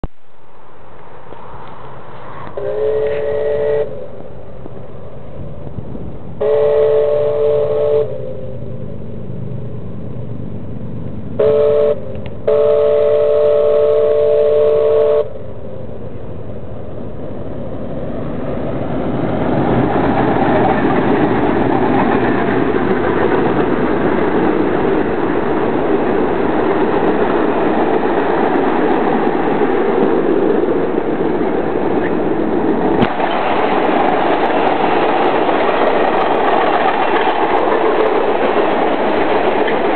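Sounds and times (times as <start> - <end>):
train wheels rumbling on rail: 0.0 - 39.9
steam locomotive whistle: 2.5 - 4.2, 6.4 - 8.7, 11.4 - 15.4.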